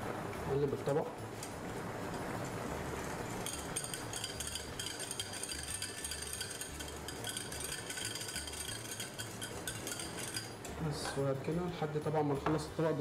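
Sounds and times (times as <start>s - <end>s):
metal utensil clinking in a bowl: 3.4s - 11.3s.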